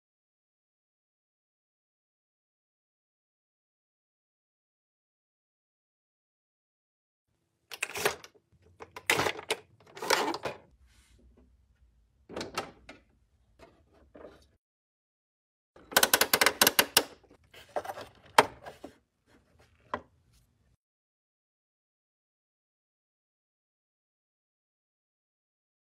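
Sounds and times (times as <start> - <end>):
plastic toy parts clattering: 7.7 - 10.7, 15.8 - 18.8.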